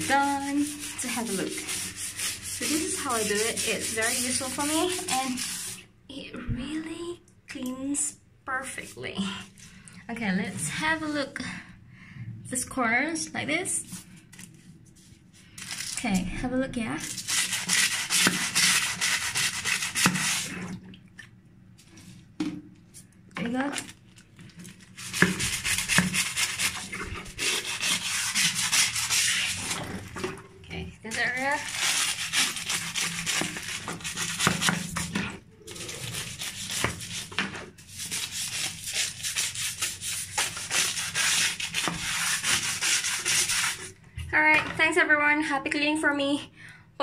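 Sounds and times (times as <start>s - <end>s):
scrub brush scrubbing wet floor: 0.0s - 5.8s, 17.1s - 20.6s, 24.9s - 30.3s, 31.1s - 44.0s.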